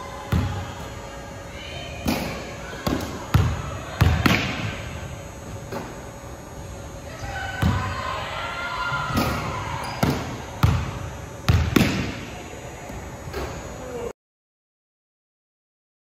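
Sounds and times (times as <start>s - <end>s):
basketballs bouncing on hardwood floor: 10.0s - 12.0s.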